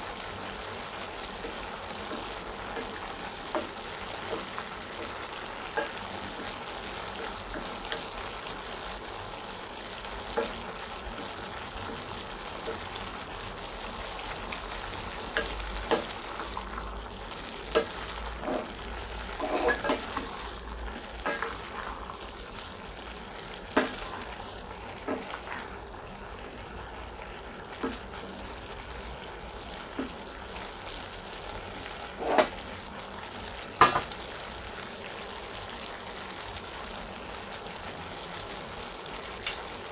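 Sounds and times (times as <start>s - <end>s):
vegetables and meat sizzling in pan: 0.0s - 39.9s
spatula scraping and knocking pan: 1.4s - 8.1s, 15.3s - 16.8s, 17.6s - 25.9s, 32.1s - 32.6s.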